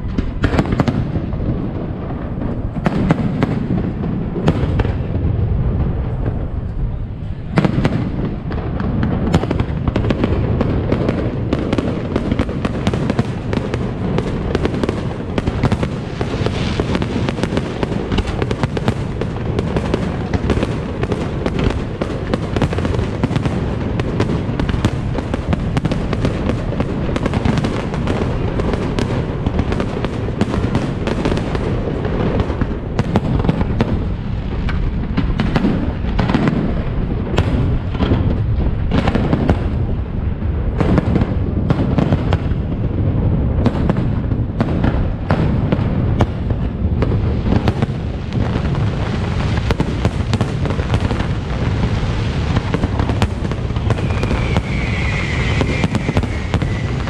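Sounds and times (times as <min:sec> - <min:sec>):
fireworks bangs and crackling: 0:00.0 - 0:57.0
low rumble: 0:01.0 - 0:09.9.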